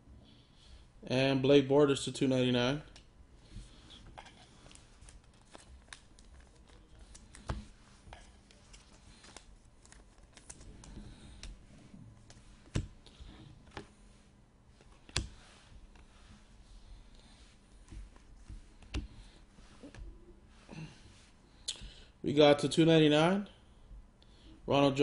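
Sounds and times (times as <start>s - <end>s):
trading cards clicking and rustling: 4.2s - 11.6s.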